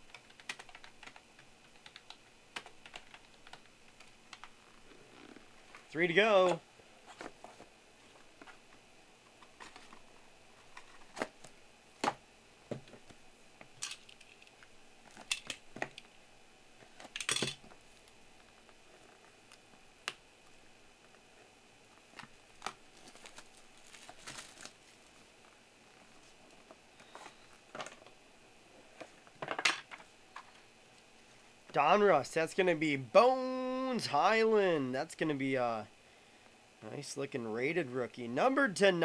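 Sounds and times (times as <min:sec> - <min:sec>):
cardboard rustle: 0:22.5 - 0:25.3.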